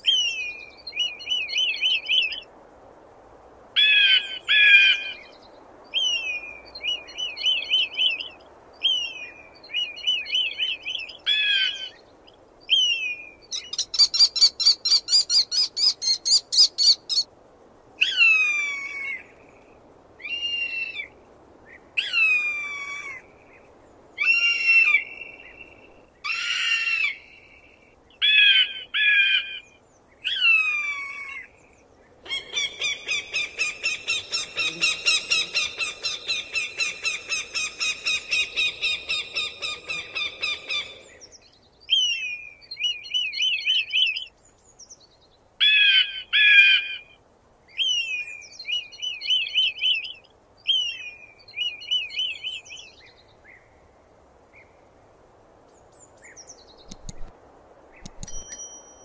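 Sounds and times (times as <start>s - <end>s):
falcon calling: 32.3s - 41.1s.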